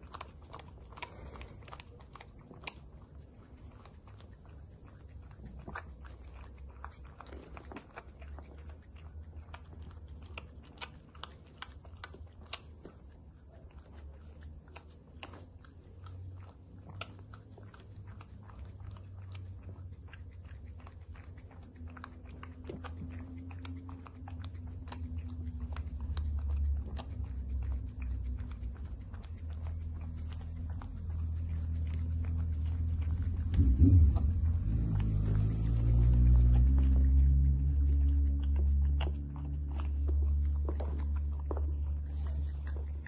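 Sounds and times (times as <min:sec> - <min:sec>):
dog licking and lapping: 0:00.0 - 0:43.0
low rumble: 0:21.5 - 0:43.0.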